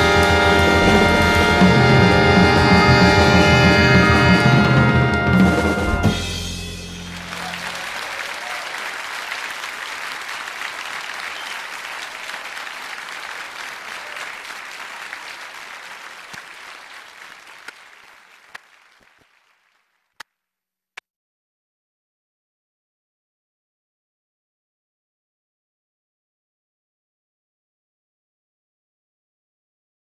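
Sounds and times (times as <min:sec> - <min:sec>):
audience applause: 0:00.0 - 0:05.9, 0:06.9 - 0:20.1
song final chord: 0:00.0 - 0:07.8.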